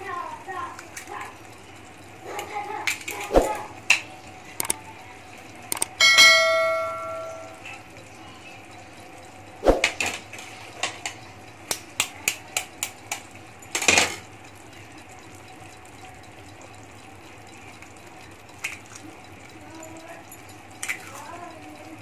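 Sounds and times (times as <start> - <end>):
utensils tapping a frying pan: 5.7 - 22.0
egg cracking: 9.5 - 14.5.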